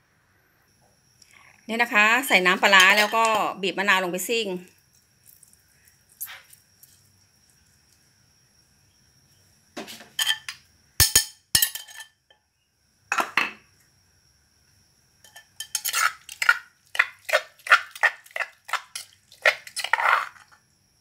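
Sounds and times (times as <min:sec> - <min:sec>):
metal spoon scraping in mortar: 0:02.7 - 0:03.5, 0:15.2 - 0:20.6.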